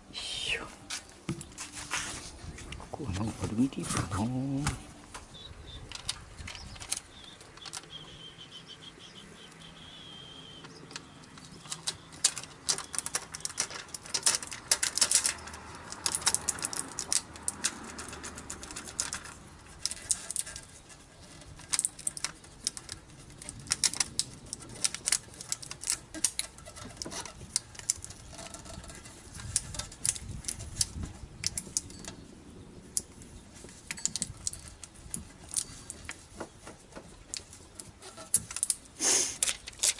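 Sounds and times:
foil tape crinkling and crackling: 0:11.0 - 0:32.2, 0:32.8 - 0:39.9.

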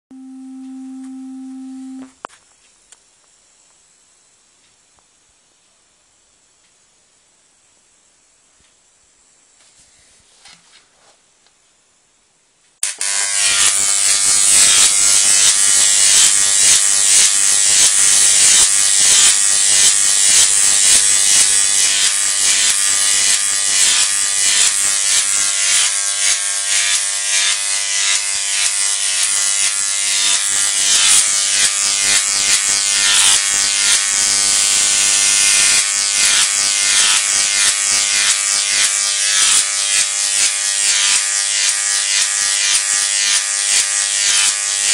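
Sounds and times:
electric arc buzzing and crackling: 0:12.8 - 0:44.9.

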